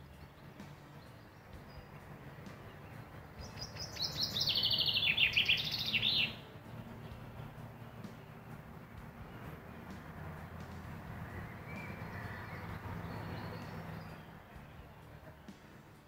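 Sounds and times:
songbird trilling: 2.8s - 6.5s.

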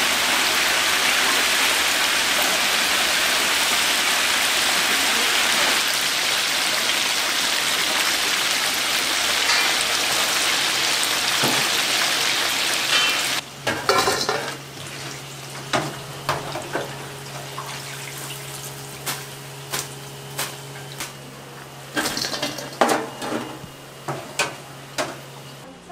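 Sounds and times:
oil sizzling: 0.0s - 21.2s
frying basket metal clinks: 9.4s - 10.3s, 12.8s - 14.6s.

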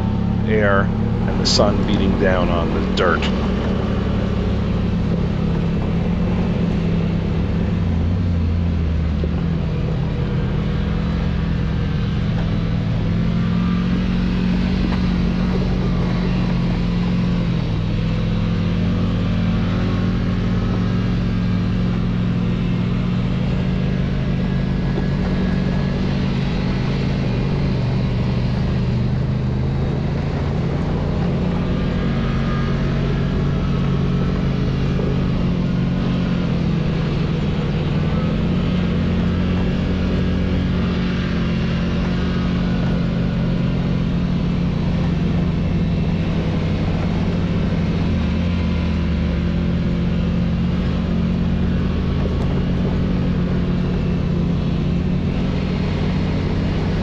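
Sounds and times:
road and wind noise: 0.0s - 57.0s
vehicle engine running: 0.0s - 57.0s.

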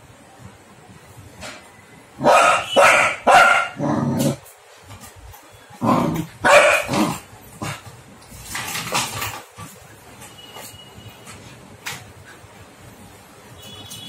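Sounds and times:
puppy barking: 2.2s - 3.8s, 6.4s - 7.2s.

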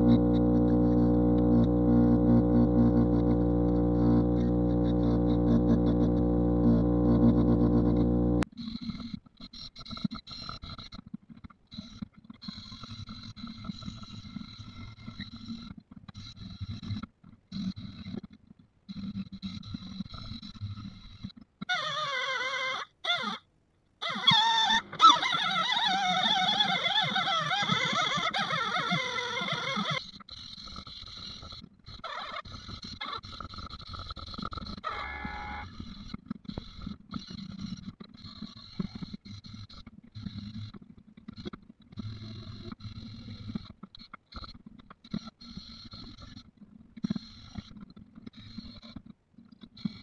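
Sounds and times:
drill wire brush scrubbing metal: 0.0s - 8.4s.

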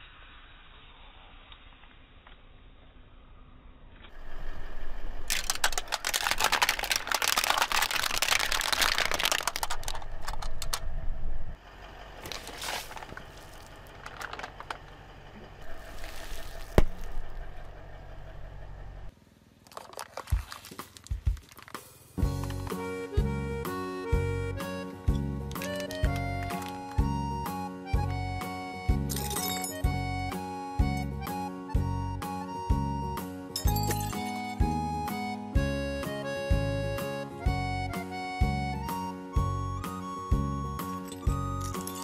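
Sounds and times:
plastic lighters crunching under tyre: 5.3s - 10.8s, 12.2s - 15.0s, 19.6s - 22.6s.

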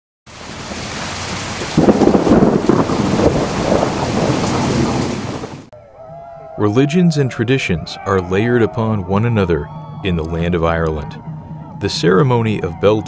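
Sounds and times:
heavy rain falling: 0.3s - 5.7s
thunder rumbling: 0.4s - 5.7s.

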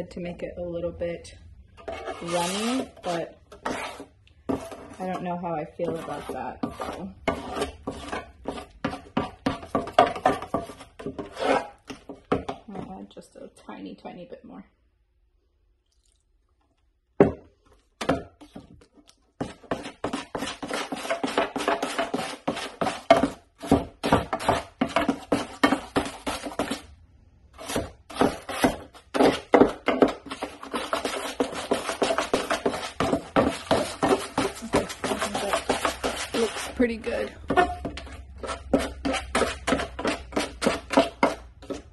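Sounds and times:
putty knife scraping metal pan: 1.8s - 12.2s, 19.4s - 26.9s, 27.6s - 41.9s.

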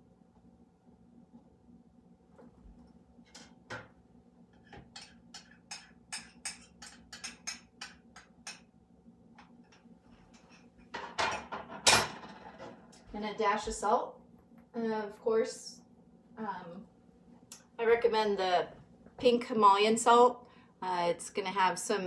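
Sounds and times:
faint steady hum: 0.0s - 22.0s
kitchen utensils clattering: 11.0s - 12.8s.

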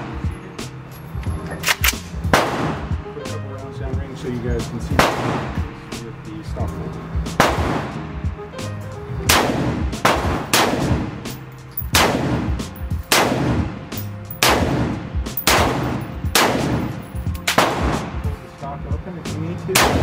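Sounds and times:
rifle shots with echo: 5.0s - 5.6s, 7.4s - 7.9s, 9.3s - 11.2s, 11.8s - 18.3s, 19.8s - 20.0s.

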